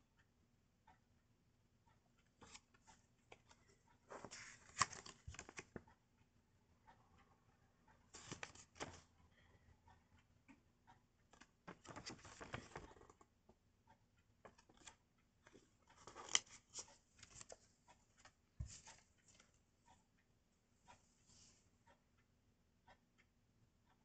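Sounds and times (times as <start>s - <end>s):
paper cards rustling and clicking: 4.1s - 5.8s, 8.2s - 9.0s, 11.4s - 13.2s, 15.5s - 17.6s.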